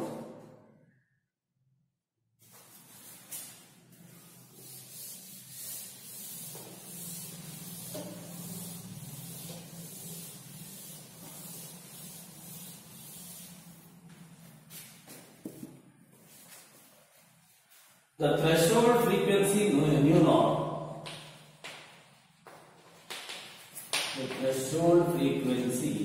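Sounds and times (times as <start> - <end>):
board duster wiping blackboard: 2.4 - 19.1.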